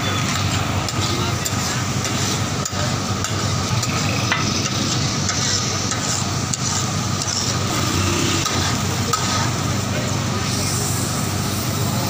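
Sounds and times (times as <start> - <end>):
metal spatulas scraping a griddle: 4.3 - 9.6.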